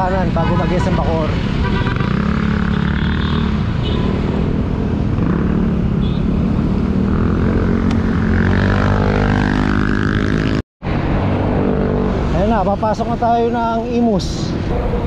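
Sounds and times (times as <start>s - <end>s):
busy road traffic: 0.0s - 15.0s.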